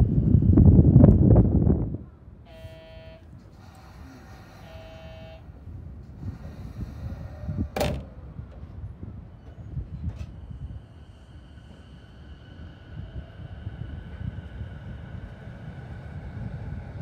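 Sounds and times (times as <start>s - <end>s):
train low rumble: 0.0s - 17.0s
short electronic tones: 2.5s - 3.2s, 4.6s - 5.4s.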